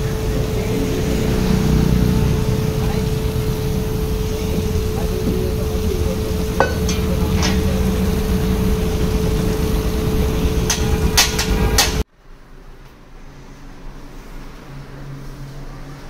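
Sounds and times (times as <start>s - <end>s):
machine hum: 0.0s - 12.1s
water jet hissing: 0.0s - 12.1s.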